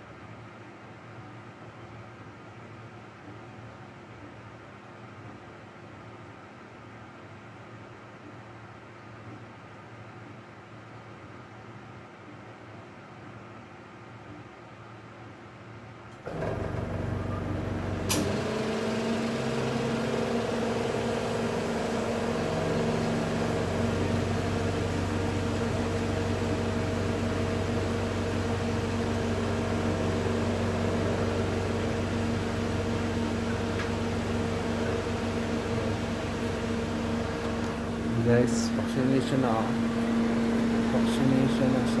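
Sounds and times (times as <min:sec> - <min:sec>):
vacuum pump humming: 0:16.2 - 0:42.0.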